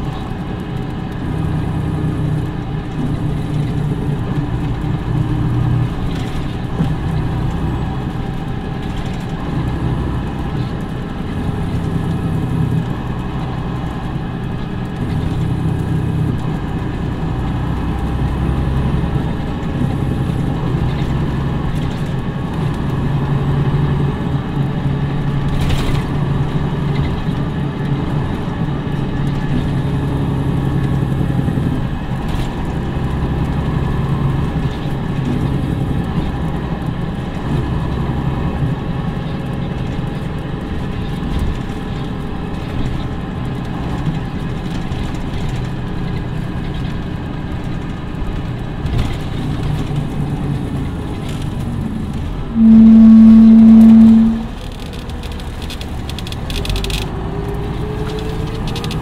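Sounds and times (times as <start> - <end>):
diesel engine humming: 49.4 - 56.1.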